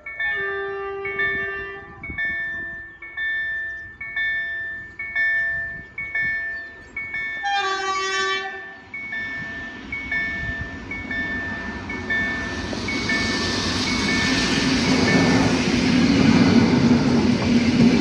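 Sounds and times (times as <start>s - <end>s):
train horn: 0.0s - 2.2s, 7.4s - 8.8s
level crossing warning bell: 0.0s - 18.0s.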